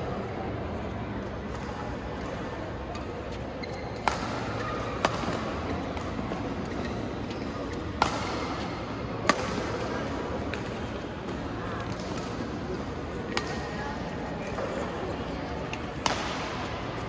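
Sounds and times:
steady hall hum: 0:00.0 - 0:17.0
badminton racket hitting shuttlecock: 0:07.8 - 0:08.6.

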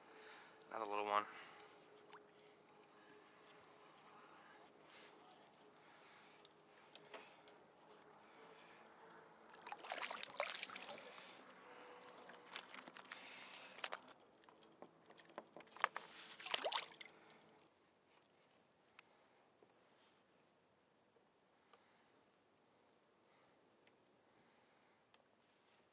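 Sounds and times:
water splashing and trickling: 0:01.4 - 0:02.9, 0:09.4 - 0:17.6.

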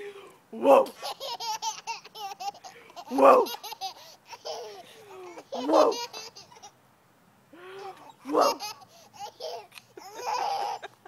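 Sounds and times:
young child laughing: 0:08.0 - 0:11.0.

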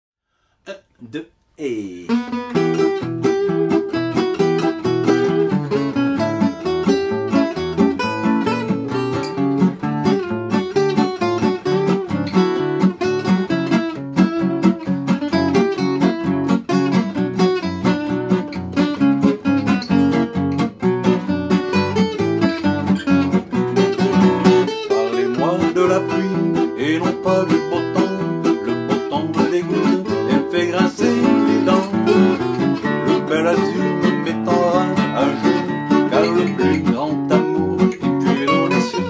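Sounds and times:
man singing: 0:00.7 - 0:02.2, 0:24.4 - 0:39.0
acoustic guitars playing: 0:00.7 - 0:39.0.

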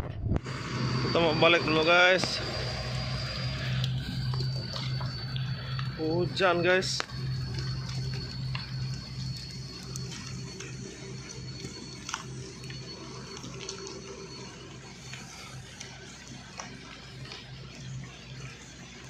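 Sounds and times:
low pulsing hum: 0:00.0 - 0:19.0
rain falling: 0:07.1 - 0:17.6.

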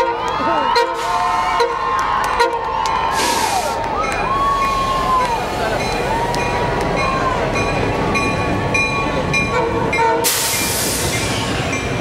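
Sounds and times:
diesel locomotives rumbling: 0:00.0 - 0:12.0
loud hiss: 0:03.1 - 0:03.8, 0:10.2 - 0:11.6.

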